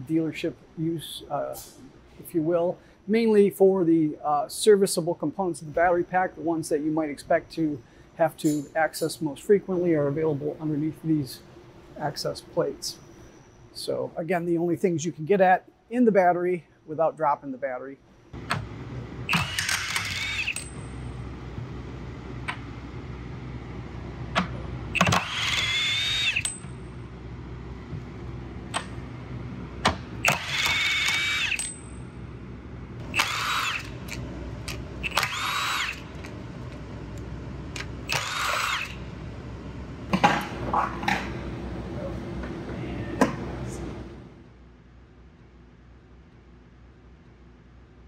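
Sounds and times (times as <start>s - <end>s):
power drill spinning: 19.3s - 20.7s, 24.9s - 26.6s, 30.2s - 31.7s, 33.0s - 36.4s, 37.8s - 39.0s.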